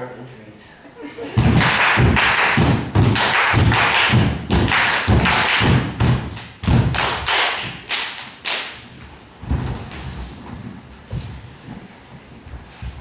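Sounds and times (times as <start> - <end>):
clapping and stomping on wood: 1.4 - 8.8.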